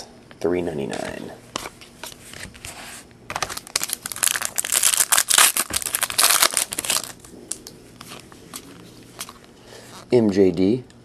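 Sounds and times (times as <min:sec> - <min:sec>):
wrapper crinkling: 0:03.3 - 0:09.5.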